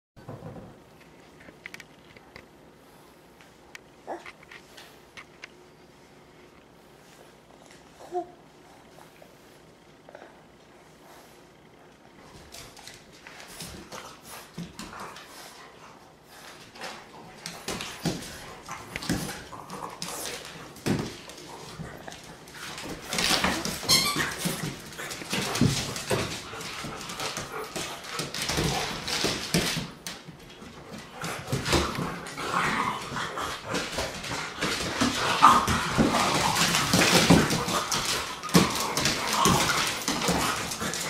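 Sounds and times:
dogs whining and playing: 0:04.0 - 0:04.8, 0:15.8 - 0:41.0
paws scrabbling on wooden floor: 0:11.0 - 0:41.0.

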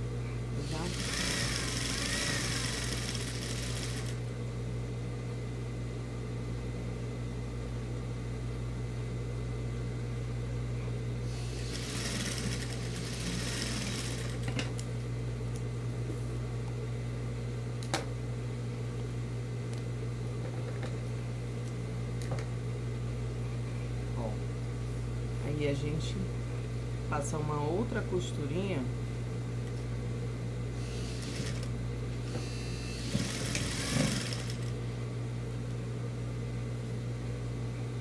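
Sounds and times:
steady low hum: 0:00.0 - 0:38.0
sewing machine running: 0:00.6 - 0:04.2, 0:11.5 - 0:14.5, 0:30.9 - 0:31.7, 0:33.0 - 0:34.7.

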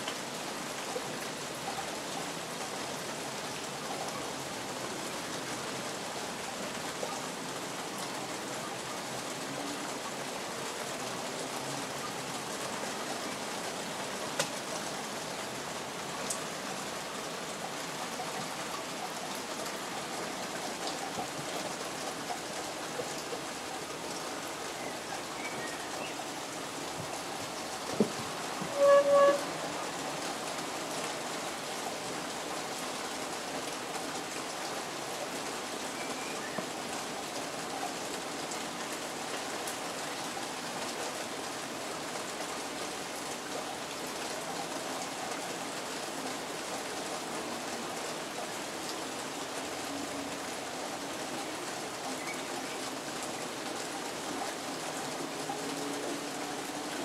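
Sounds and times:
rain on a roof: 0:00.0 - 0:57.0.

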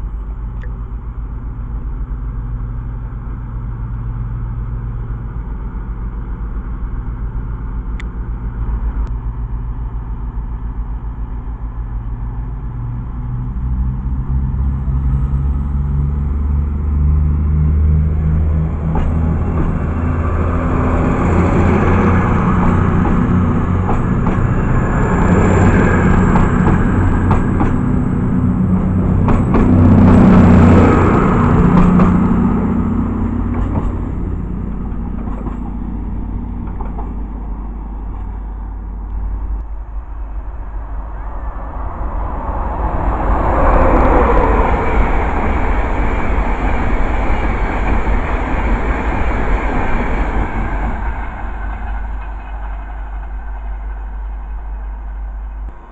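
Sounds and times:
diesel train engine running: 0:00.0 - 0:55.9
train rushing past: 0:00.0 - 0:55.9.

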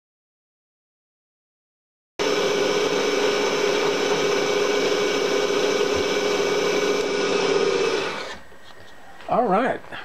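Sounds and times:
milling machine humming: 0:02.2 - 0:09.2.

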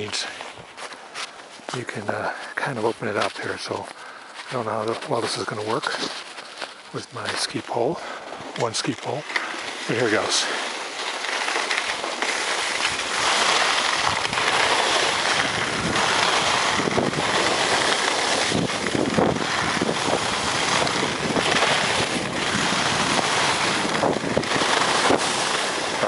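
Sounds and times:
skis sliding over snow: 0:00.0 - 0:26.0
wind buffeting microphone: 0:12.8 - 0:26.0.

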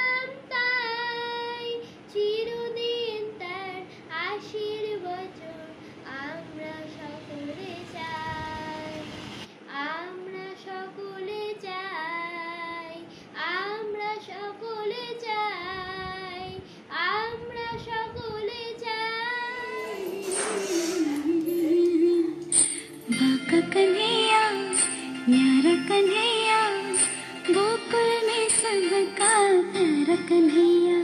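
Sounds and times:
boy singing: 0:09.7 - 0:22.5.

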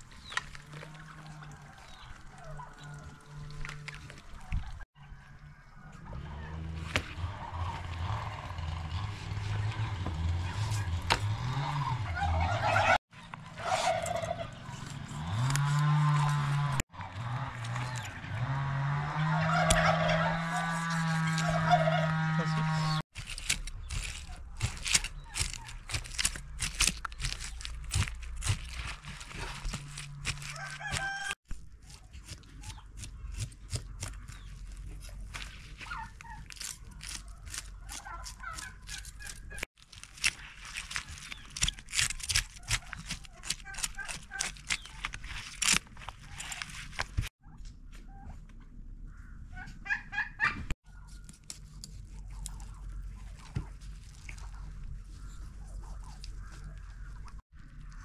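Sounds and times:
chicken calling: 0:11.7 - 0:14.7, 0:19.1 - 0:23.0, 0:30.2 - 0:31.4, 0:49.1 - 0:51.1.

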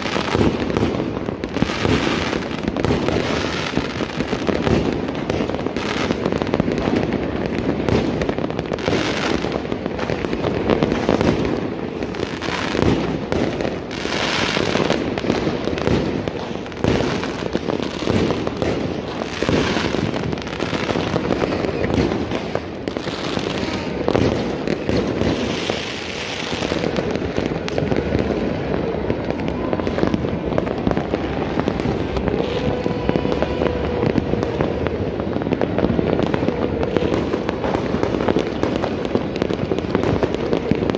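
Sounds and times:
fireworks crackling and banging: 0:00.0 - 0:40.9.

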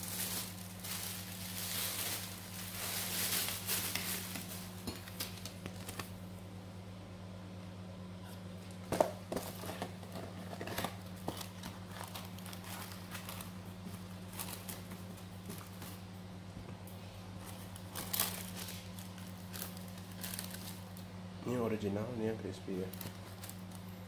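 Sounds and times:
paper crinkling and rustling: 0:00.0 - 0:06.2, 0:08.9 - 0:16.1, 0:17.3 - 0:21.1, 0:22.5 - 0:24.0.

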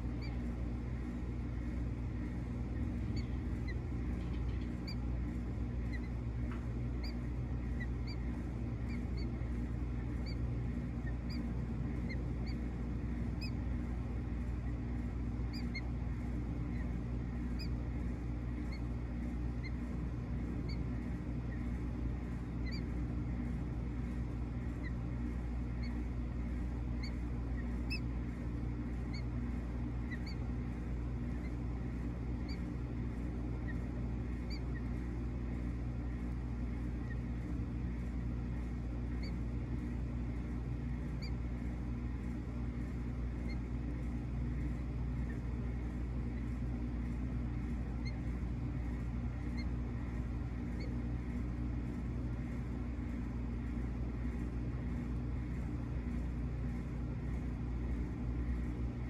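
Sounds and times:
low mechanical hum: 0:00.0 - 0:59.0
high bird chirps: 0:02.8 - 0:06.2, 0:06.9 - 0:12.7, 0:13.3 - 0:13.8, 0:15.4 - 0:16.0, 0:16.6 - 0:17.8, 0:18.5 - 0:18.9, 0:26.8 - 0:28.2, 0:30.0 - 0:30.5, 0:33.6 - 0:35.0, 0:40.9 - 0:41.4.

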